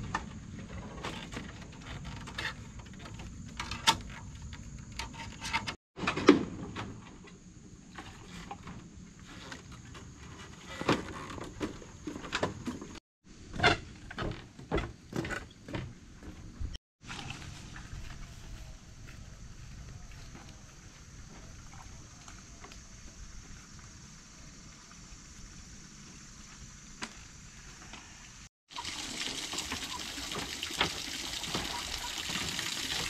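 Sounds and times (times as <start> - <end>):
things moved on bamboo deck: 0.0 - 18.4
footsteps on bamboo planks: 9.2 - 23.9.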